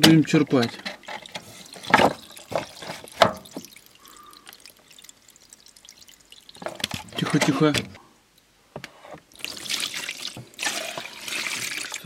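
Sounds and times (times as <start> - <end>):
water dribbling: 0.7 - 7.4, 9.3 - 12.0
water splashing in plastic tray: 0.9 - 7.4, 9.3 - 12.0.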